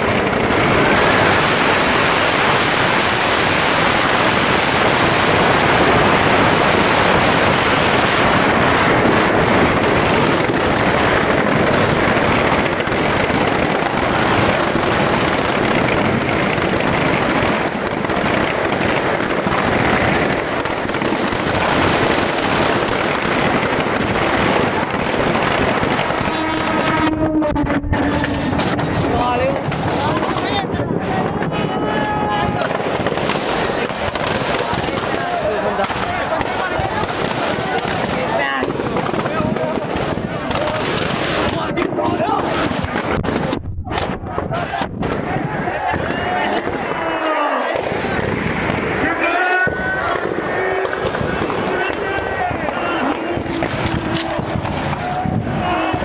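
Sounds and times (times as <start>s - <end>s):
firecrackers crackling: 0.0s - 56.0s
pitched tone: 26.4s - 28.8s.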